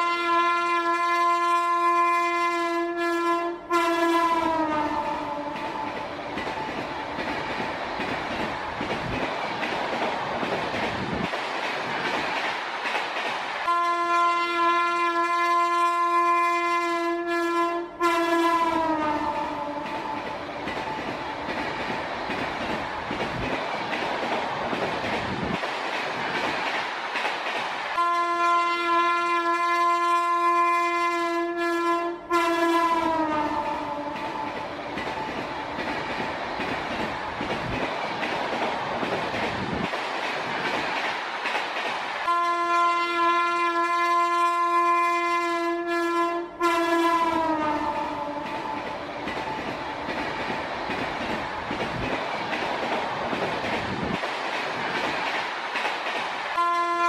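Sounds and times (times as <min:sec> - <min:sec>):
train horn blasts: 0:00.0 - 0:05.9, 0:13.7 - 0:19.9, 0:28.0 - 0:34.5, 0:42.3 - 0:48.5, 0:56.6 - 0:57.0
train rumbling past: 0:00.0 - 0:57.0.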